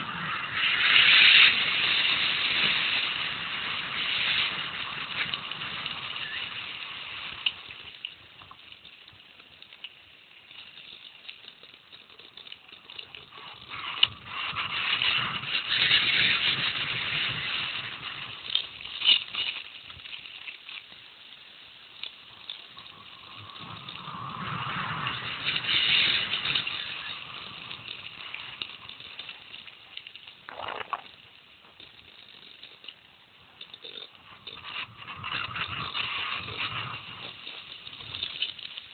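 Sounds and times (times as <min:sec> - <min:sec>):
bike rattling: 0:00.0 - 0:09.1, 0:10.0 - 0:38.9
tyres crunching over stones: 0:30.5 - 0:31.2.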